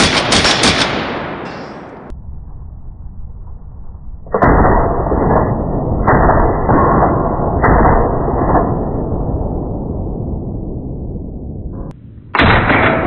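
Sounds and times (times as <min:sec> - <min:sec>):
rifle shots echoing: 0:00.0 - 0:02.1.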